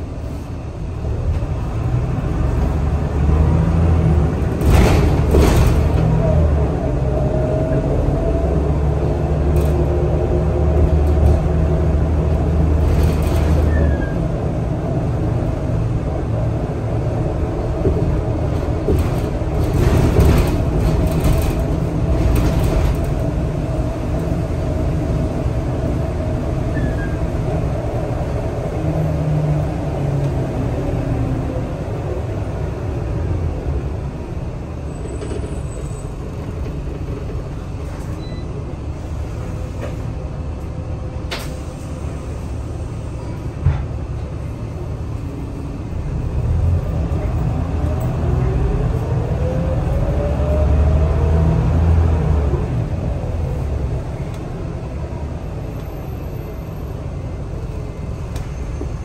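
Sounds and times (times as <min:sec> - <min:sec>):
bus engine and road rumble: 0:00.0 - 0:59.0
bus interior rattles: 0:00.0 - 0:59.0.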